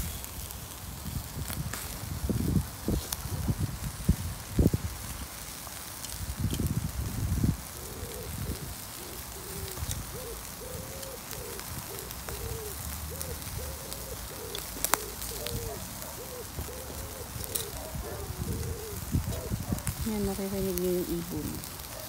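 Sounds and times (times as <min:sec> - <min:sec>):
bird low hooting: 0:07.8 - 0:19.8.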